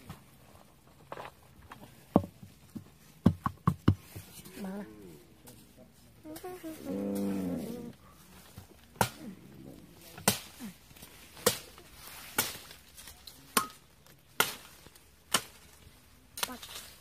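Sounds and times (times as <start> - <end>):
hand tool chopping: 10.2 - 10.5.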